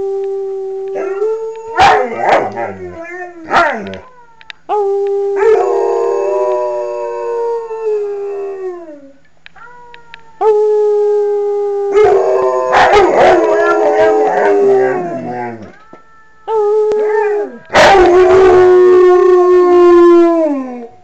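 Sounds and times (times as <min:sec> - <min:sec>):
dogs howling: 0:00.7 - 0:04.1, 0:05.3 - 0:09.0, 0:11.8 - 0:20.9.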